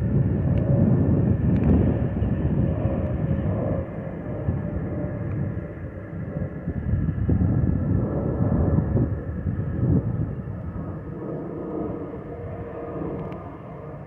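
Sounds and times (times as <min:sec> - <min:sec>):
jet airliner rumble overhead: 0:00.0 - 0:14.0.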